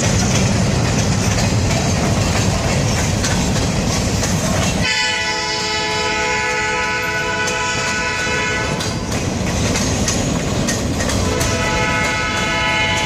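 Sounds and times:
train wheels rumbling and clattering: 0.0 - 13.0
locomotive horn blast: 4.8 - 8.9, 11.2 - 13.0.

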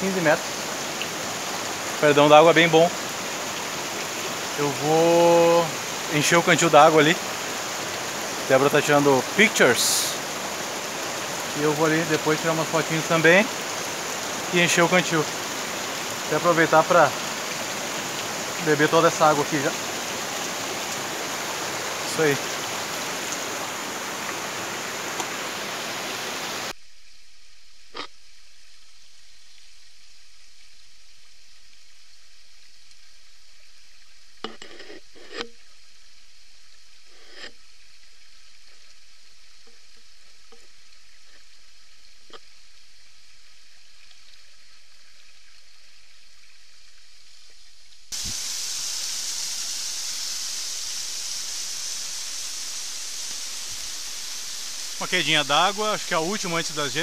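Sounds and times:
loud stream rush: 0.0 - 26.8, 48.1 - 57.0
waterfall rushing: 0.0 - 26.8, 48.1 - 57.0
faint hiss: 0.0 - 57.0.

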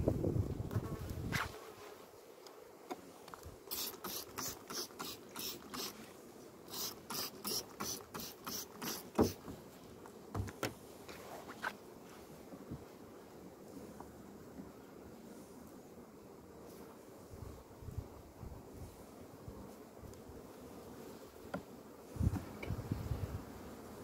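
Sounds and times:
hive tool scraping wooden frames: 0.8 - 12.0
wooden knocks on beehive: 9.1 - 9.6, 10.3 - 10.8, 21.4 - 22.7.

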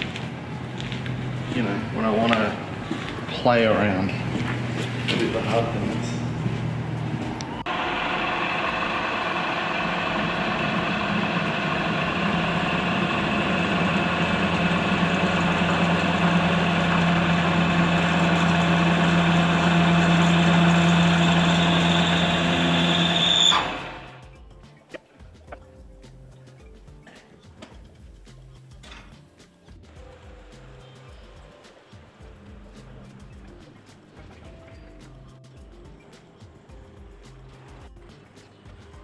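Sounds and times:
metal lathe whining hum: 0.0 - 24.2.

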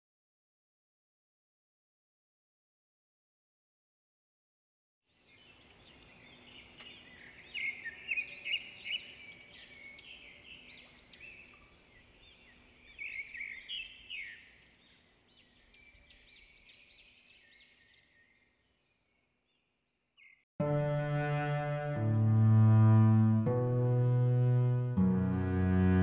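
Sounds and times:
faint outdoor background noise: 5.1 - 20.2
songbirds chirping: 5.1 - 20.4.

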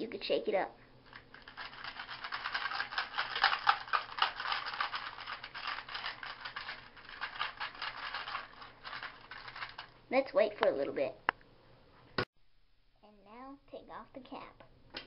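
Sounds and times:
coins rattling in container: 1.1 - 9.9.

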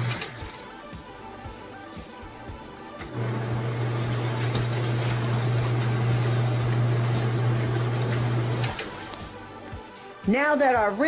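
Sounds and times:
washing machine motor hum: 0.0 - 0.7, 2.4 - 9.6.

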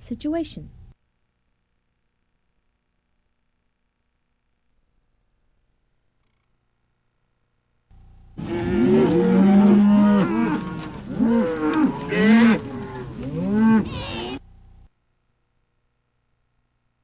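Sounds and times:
cows mooing: 8.4 - 14.4.

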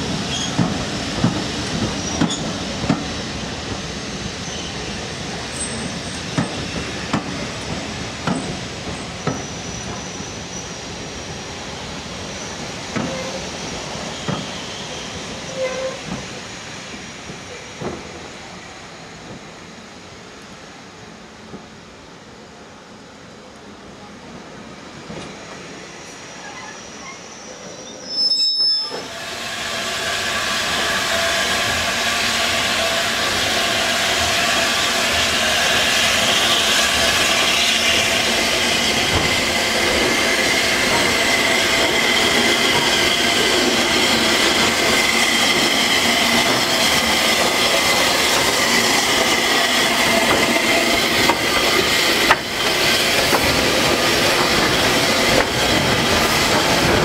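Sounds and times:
steel wheels squealing: 0.2 - 0.7, 1.9 - 3.3, 4.4 - 7.6, 8.4 - 11.4, 12.3 - 16.2, 25.8 - 57.0
train rumble: 28.9 - 57.0.

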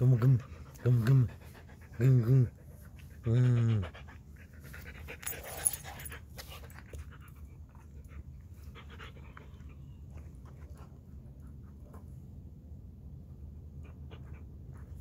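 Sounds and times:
dog panting: 0.0 - 12.3, 13.3 - 15.0.

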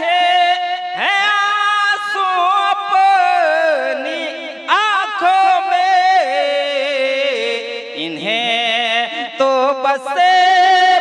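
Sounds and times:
man singing into a microphone: 0.0 - 11.0.

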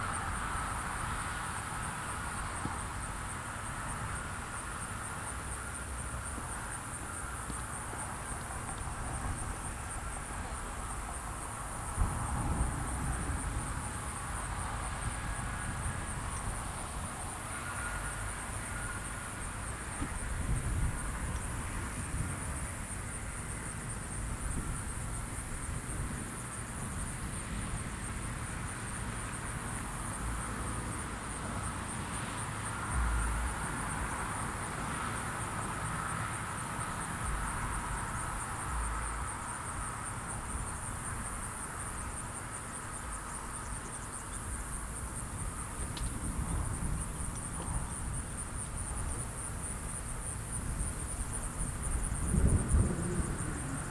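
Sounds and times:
insects trilling: 0.0 - 53.9
wind rumbling on microphone: 7.2 - 17.5, 18.2 - 29.2, 44.5 - 53.9.

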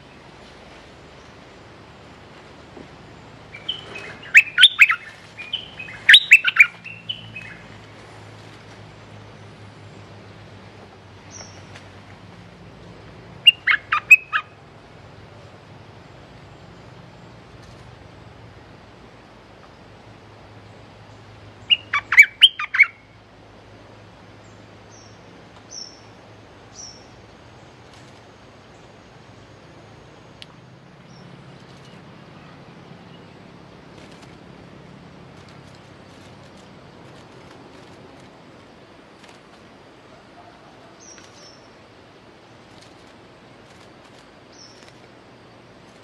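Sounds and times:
bird chirping: 3.2 - 7.8, 11.2 - 11.7, 13.4 - 14.6, 20.7 - 23.2, 24.4 - 26.1, 26.7 - 27.2, 40.4 - 41.8, 44.5 - 44.9.

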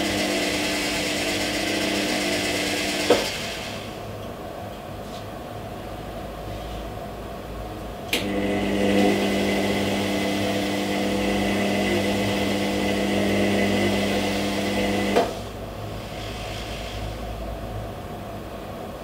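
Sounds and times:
washing machine drum motor humming: 0.0 - 4.1, 8.1 - 15.4.

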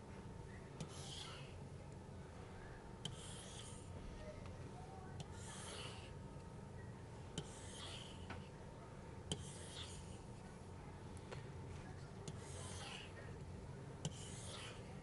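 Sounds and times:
stylus scratching on tablet: 0.8 - 1.6, 3.1 - 4.0, 5.2 - 6.2, 7.4 - 8.6, 9.3 - 10.5, 12.2 - 13.4, 14.0 - 15.0.

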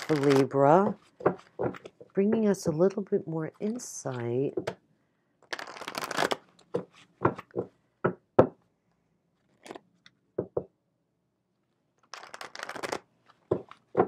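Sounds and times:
cards shuffling: 0.0 - 2.0, 5.4 - 7.6, 9.4 - 9.8, 12.0 - 14.0.

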